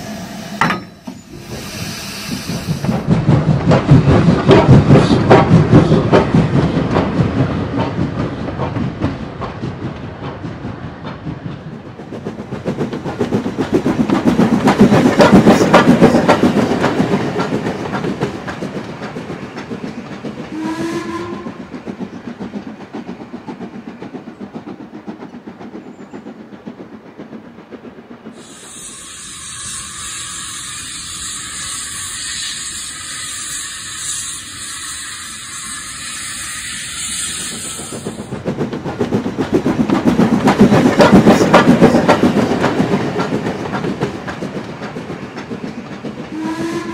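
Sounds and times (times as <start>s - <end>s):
steam hissing: 0.0s - 6.0s, 28.2s - 46.9s
short train whistle: 20.5s - 21.6s, 28.4s - 38.1s, 46.3s - 46.9s.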